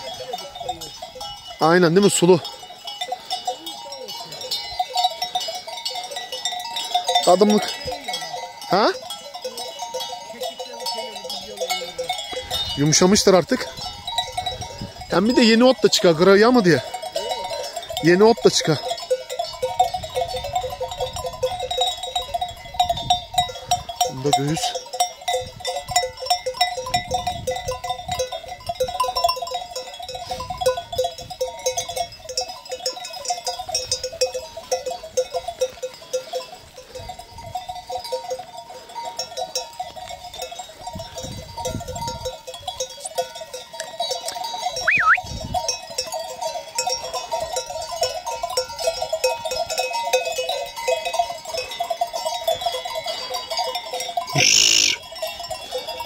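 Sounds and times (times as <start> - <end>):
sheep bells clanking: 0.0 - 56.0.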